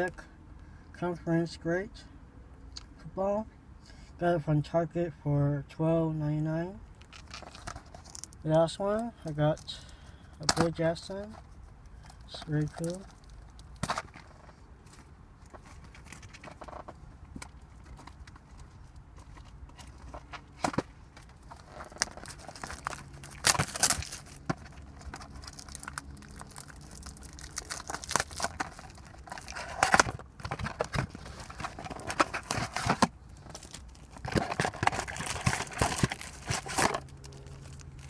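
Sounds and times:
packaging crinkling and tearing: 0:07.0 - 0:08.4, 0:12.2 - 0:14.5, 0:20.6 - 0:38.0.

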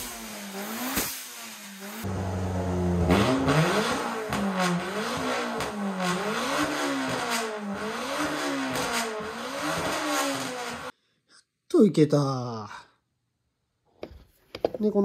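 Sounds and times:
engine revving up and down: 0:00.0 - 0:10.9.

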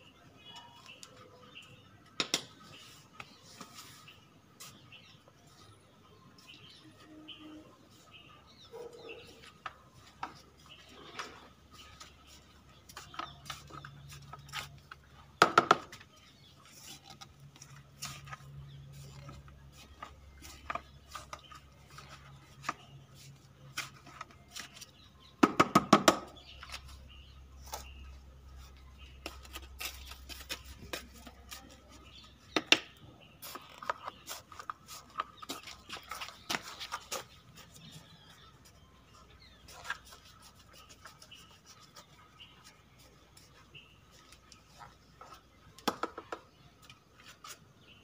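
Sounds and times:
scraping soil in plastic buckets: 0:02.5 - 0:25.3, 0:26.3 - 0:48.0.

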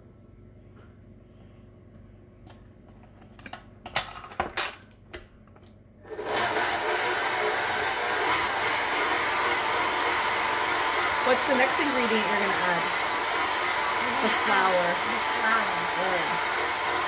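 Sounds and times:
stand mixer motor running: 0:06.1 - 0:17.0.

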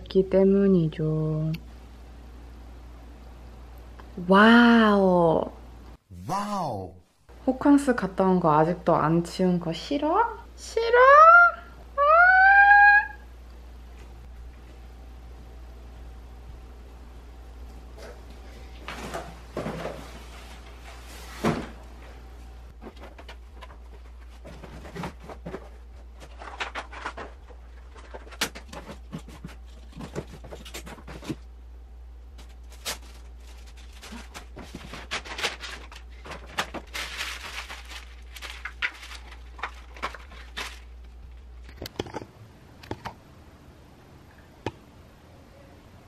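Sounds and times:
low steady hum: 0:00.0 - 0:46.0
cardboard rustling and crinkling: 0:22.7 - 0:31.5, 0:32.3 - 0:41.8.

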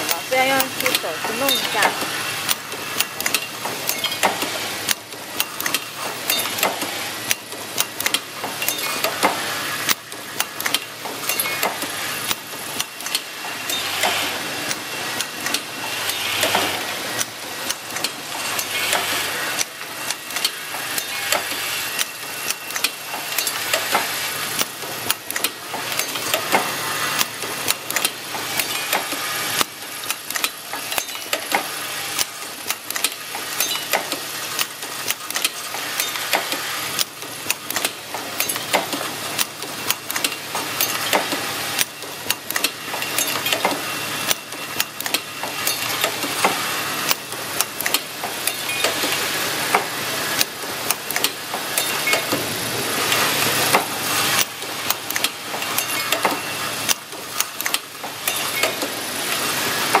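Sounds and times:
buzzing hum of feeders: 0:00.0 - 1:00.0
pneumatic cylinders clacking: 0:00.0 - 1:00.0.

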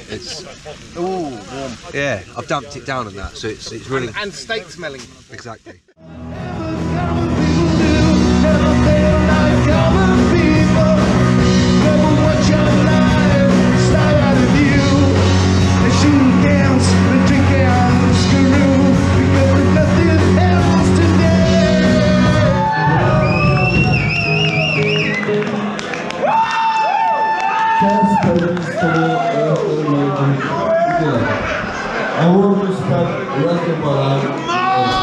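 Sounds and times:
person singing: 0:06.0 - 0:23.9
rock band playing live: 0:06.0 - 0:26.2.

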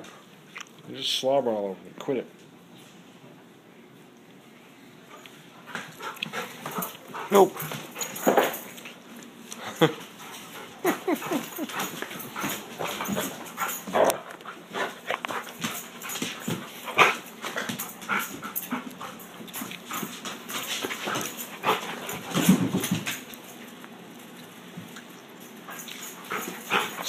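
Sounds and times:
dog licking and snuffling: 0:10.4 - 0:13.8
dog whimpering: 0:10.8 - 0:11.9.

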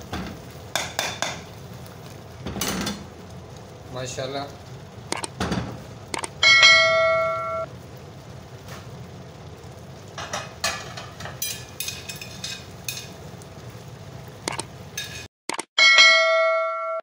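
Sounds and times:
bright bell ding: 0:06.4 - 0:07.7, 0:15.8 - 0:17.0.

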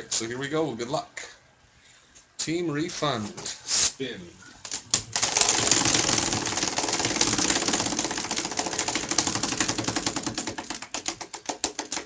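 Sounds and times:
prize wheel ticking: 0:05.1 - 0:12.0.

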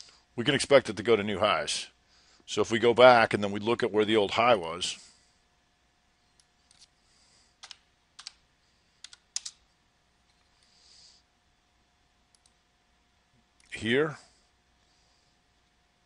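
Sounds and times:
keyboard and mouse clicks: 0:07.6 - 0:08.4, 0:09.0 - 0:09.6.

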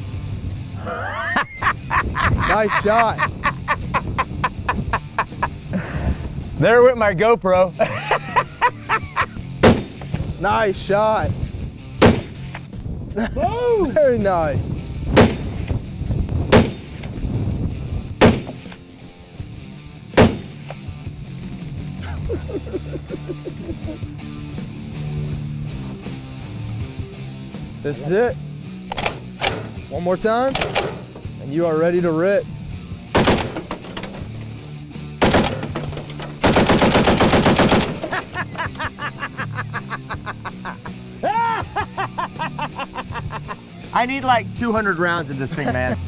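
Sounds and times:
background music: 0:00.0 - 0:46.0
rifle shots: 0:09.6 - 0:10.0, 0:12.0 - 0:12.5, 0:15.2 - 0:15.7, 0:16.5 - 0:17.0, 0:18.2 - 0:18.7, 0:20.2 - 0:20.6, 0:33.1 - 0:33.8, 0:35.2 - 0:38.2
heavy machine gun bursts: 0:33.2 - 0:33.9, 0:35.2 - 0:38.2.

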